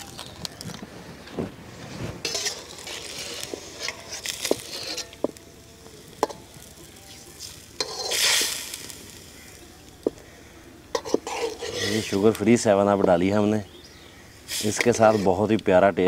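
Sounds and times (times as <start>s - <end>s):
sizzling liquid in pan: 2.2s - 12.4s, 14.4s - 15.4s
metal spatula clinking on pan: 7.8s - 8.2s.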